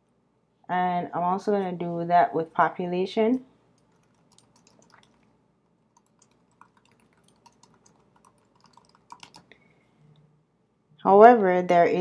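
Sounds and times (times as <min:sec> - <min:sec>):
computer keyboard typing: 0:03.8 - 0:05.3, 0:05.9 - 0:09.5.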